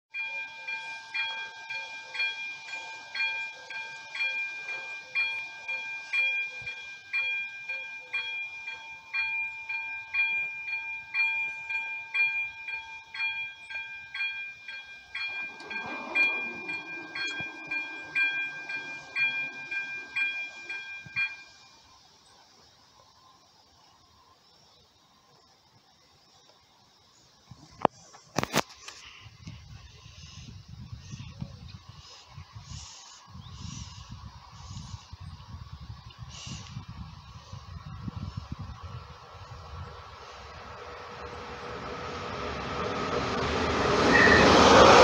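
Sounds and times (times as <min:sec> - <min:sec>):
level-crossing warning bell ringing: 0:00.1 - 0:22.4, 0:38.0 - 0:45.0
steady tone: 0:39.2 - 0:45.0.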